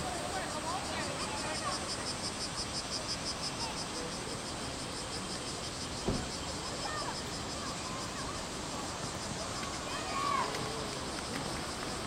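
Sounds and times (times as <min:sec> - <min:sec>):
insect pulsing call: 0:00.0 - 0:12.0
steady noisy background: 0:00.0 - 0:12.0
thud: 0:06.0 - 0:06.3
distant shouts: 0:09.7 - 0:11.0.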